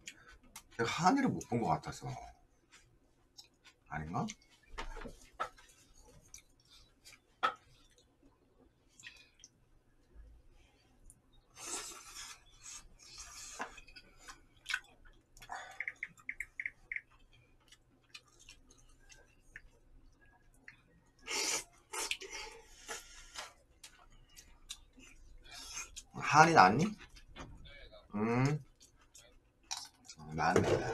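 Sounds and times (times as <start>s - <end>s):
chewing: 8.9s - 9.6s, 11.0s - 26.1s, 28.6s - 30.2s.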